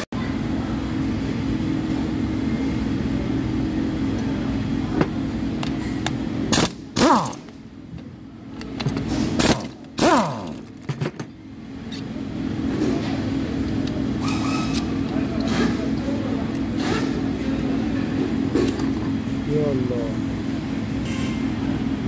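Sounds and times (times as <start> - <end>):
steady machine hum: 0.0 - 22.0
power tool whirring: 6.6 - 7.5, 9.2 - 10.7.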